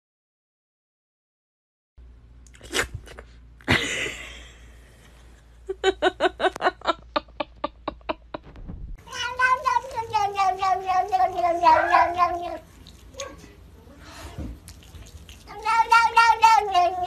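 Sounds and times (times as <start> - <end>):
noisy burst: 8.2 - 9.2
cat long falling meow: 9.1 - 12.6
cat short pitched calls: 9.1 - 12.7.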